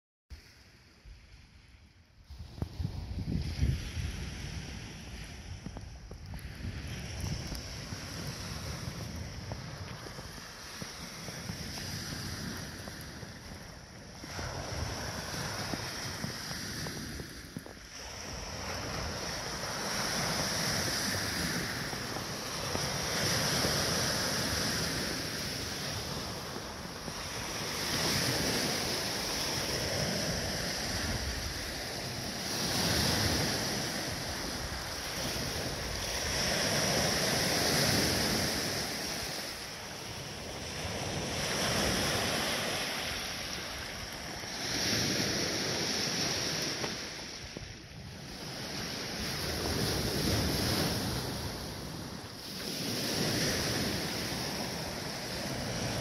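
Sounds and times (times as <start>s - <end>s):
wind on microphone: 0.4s - 56.0s
waves washing onto pebbles: 2.3s - 56.0s.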